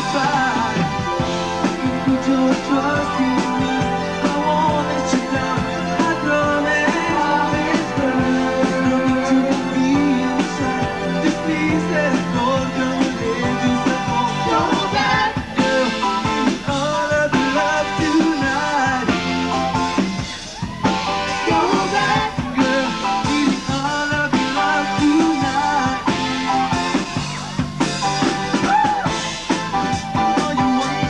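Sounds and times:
man singing into microphone: 0.0 - 1.0, 1.6 - 19.2, 21.4 - 26.2, 30.2 - 31.0
live rock band playing: 0.0 - 31.0.

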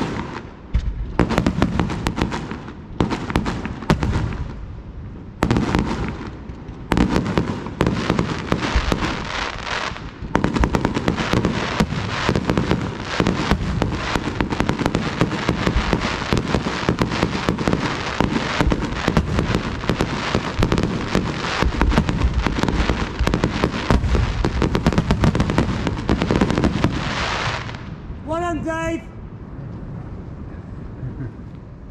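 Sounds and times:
fireworks bangs and crackling: 0.0 - 29.0.

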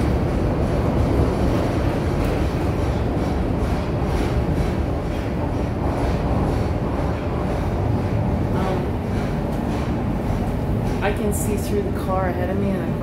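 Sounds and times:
subway train wheels on track: 0.0 - 13.0.

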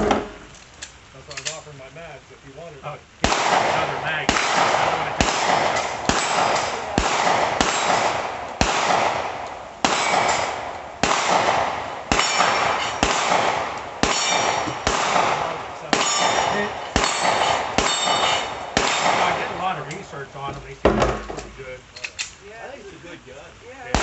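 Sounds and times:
gunshots: 3.2 - 20.2
steel plates ringing: 12.1 - 13.1, 14.0 - 14.8, 15.9 - 19.0.

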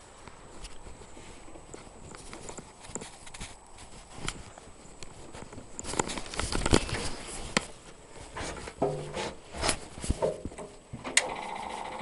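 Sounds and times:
metal knocks and clunks: 8.4 - 11.3.

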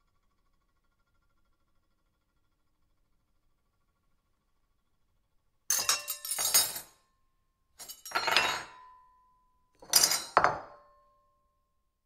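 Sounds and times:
cutlery clattering on plate: 5.7 - 7.0, 7.8 - 8.9, 9.8 - 10.9.

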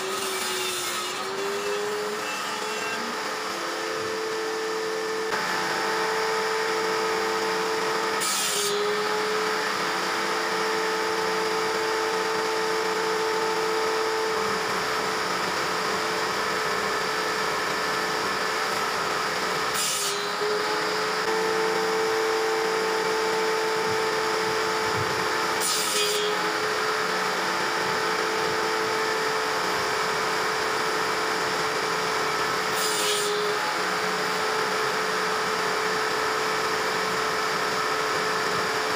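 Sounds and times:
table saw motor humming: 0.0 - 38.9
saw blade biting into wood: 24.0 - 27.2.

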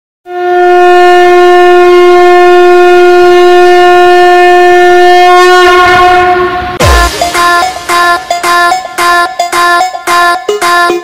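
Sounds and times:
conch shell blown: 0.3 - 11.0.

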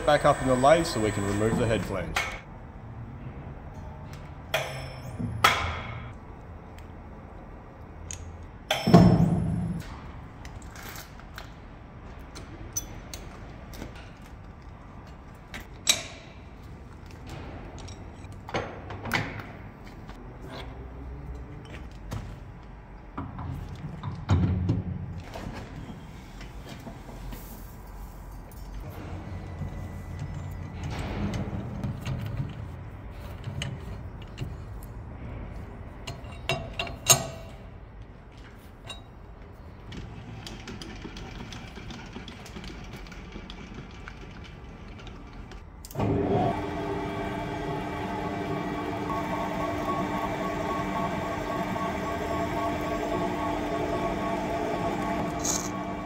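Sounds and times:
lathe running with whine: 0.0 - 2.0, 46.0 - 56.0
workshop handling noise: 52.0 - 56.0.

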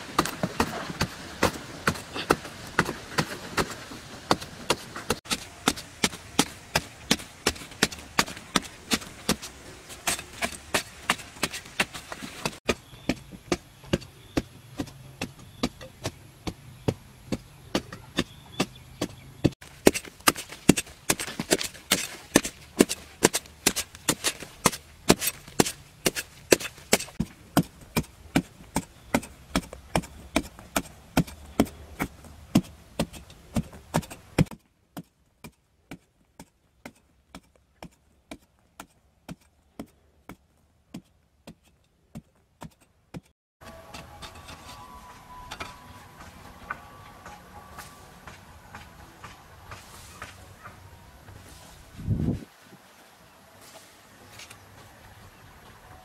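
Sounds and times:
metal blade chopping into dry soil: 0.1 - 16.2, 17.7 - 44.9.

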